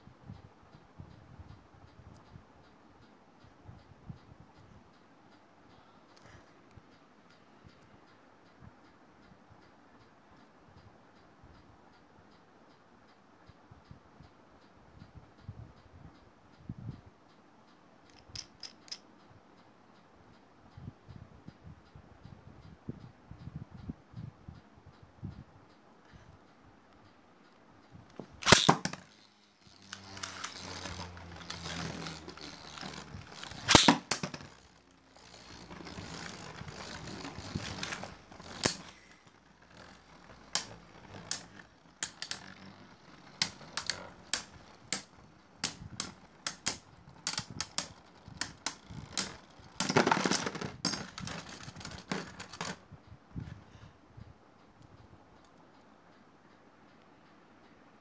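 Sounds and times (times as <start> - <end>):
spinning top launch crack: 28.2 - 52.7
plastic tops clacking: 28.2 - 52.8
spinning tops whirring: 28.2 - 52.8.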